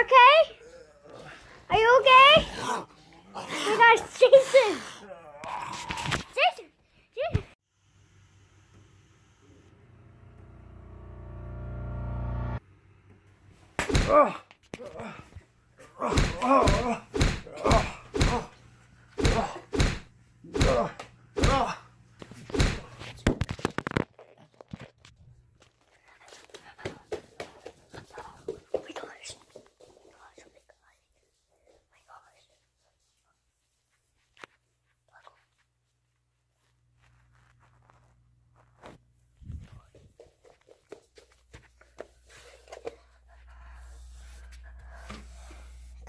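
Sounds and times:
person grunting: 4.5 - 6.2, 14.0 - 18.6, 19.2 - 19.8, 20.5 - 21.9.

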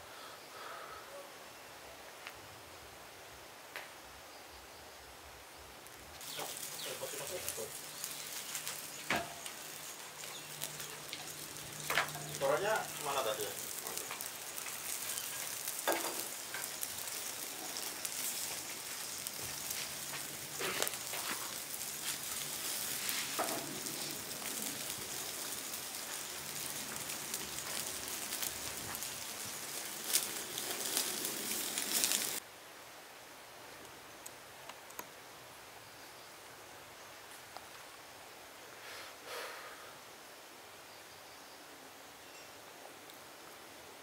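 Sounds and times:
quiet outdoor background: 0.0 - 44.0
fish sizzling over wood fire: 5.8 - 32.4.

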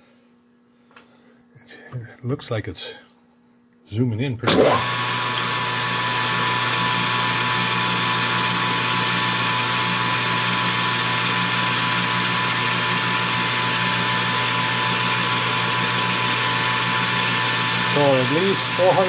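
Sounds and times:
metal lathe whining: 14.9 - 19.0
drill boring into metal: 17.0 - 19.0.

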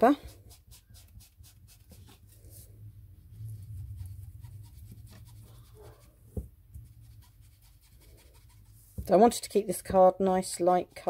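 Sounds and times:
dabber rubbing on card: 0.2 - 2.4, 3.4 - 9.0.

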